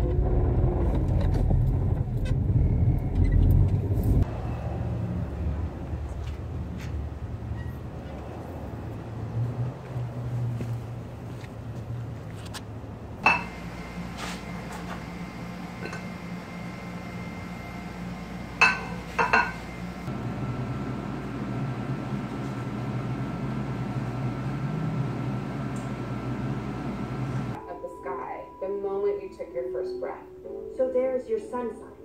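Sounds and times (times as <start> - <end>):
pan clanking against pan: 13.2 - 13.6, 18.6 - 19.6.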